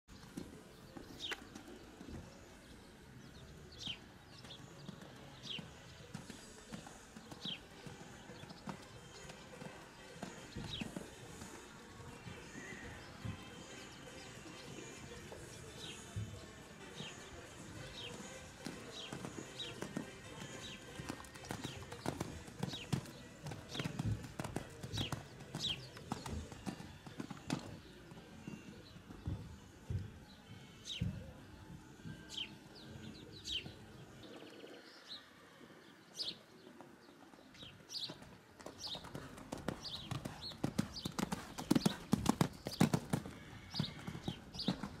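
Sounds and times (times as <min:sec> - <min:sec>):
horse hoofbeats on sand: 0:03.8 - 0:34.1, 0:37.6 - 0:45.0
bird chirp: 0:28.4 - 0:45.0.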